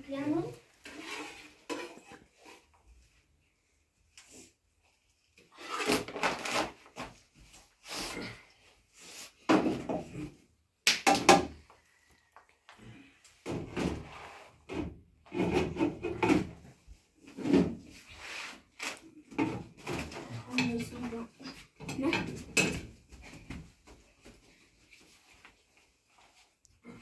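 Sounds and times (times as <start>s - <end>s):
metal ladle scraping a pan: 0.8s - 2.7s.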